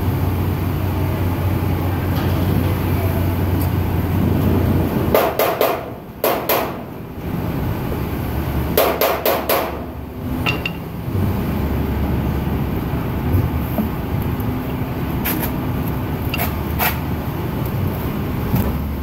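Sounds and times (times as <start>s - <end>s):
hammer striking steel: 5.2s - 6.9s, 8.8s - 10.9s.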